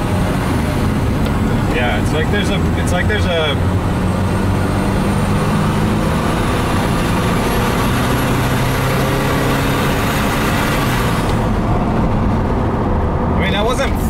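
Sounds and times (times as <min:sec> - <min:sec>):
car engine accelerating hard: 0:00.0 - 0:14.0
road and wind noise: 0:00.0 - 0:14.0.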